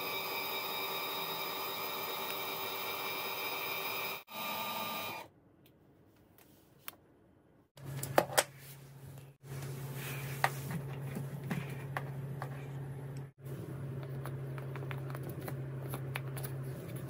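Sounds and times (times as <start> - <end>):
electric motor whine: 0.0 - 5.3.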